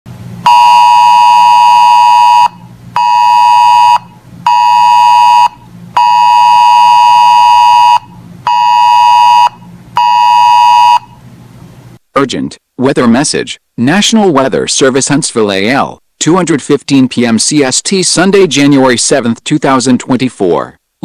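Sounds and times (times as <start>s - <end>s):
two-tone emergency alert beep: 0.5s - 11.1s.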